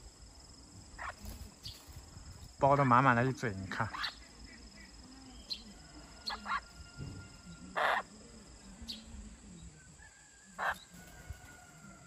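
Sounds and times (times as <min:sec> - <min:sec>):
jay harsh rasping calls: 0:07.7 - 0:08.1.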